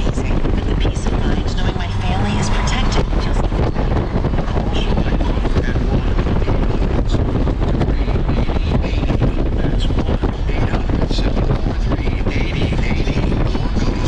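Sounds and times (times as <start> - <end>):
motorcycle engine: 0.0 - 14.0
wind buffeting microphone: 0.0 - 14.0.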